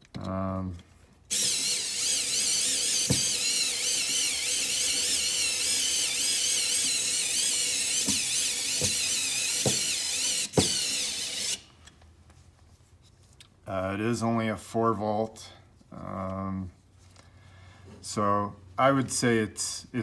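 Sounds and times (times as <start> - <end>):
screwdriver motor whine: 1.3 - 11.7.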